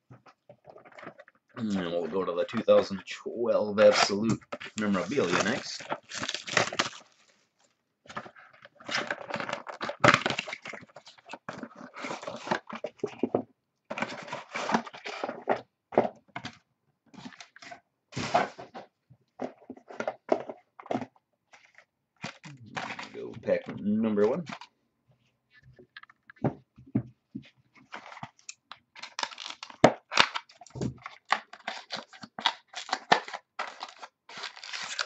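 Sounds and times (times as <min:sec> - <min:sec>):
plastic wrap crinkling and tearing: 0:03.5 - 0:13.3, 0:13.9 - 0:15.6, 0:21.5 - 0:23.6, 0:27.8 - 0:35.0.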